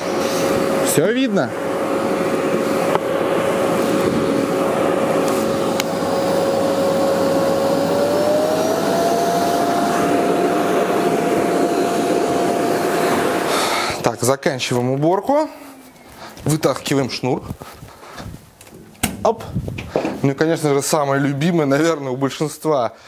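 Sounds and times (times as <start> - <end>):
vacuum cleaner on carpet: 0.0 - 14.0.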